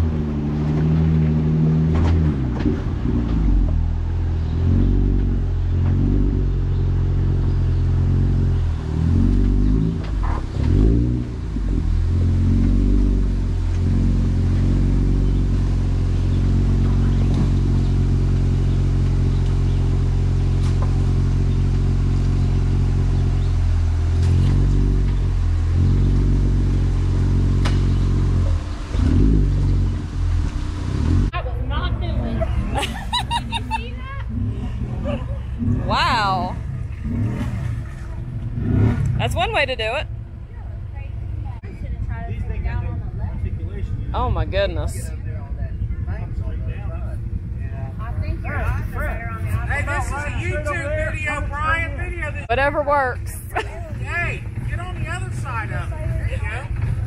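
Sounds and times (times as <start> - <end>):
engine running at low revs: 0.0 - 57.0.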